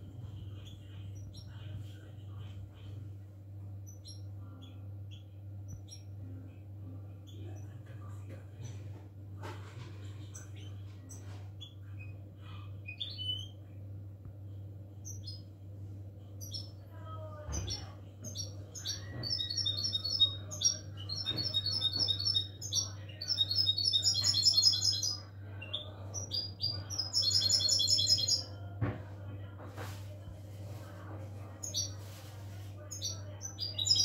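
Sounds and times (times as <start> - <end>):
steady low hum: 0.0 - 34.0
bird twittering trills: 17.6 - 28.5, 32.9 - 34.0.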